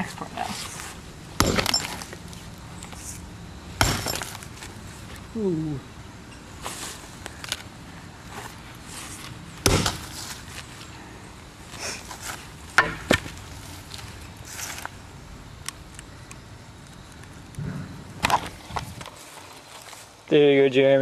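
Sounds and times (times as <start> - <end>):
rustling in grass: 6.5 - 11.0, 11.6 - 15.1, 18.4 - 20.3
axe striking phone: 9.6 - 10.0.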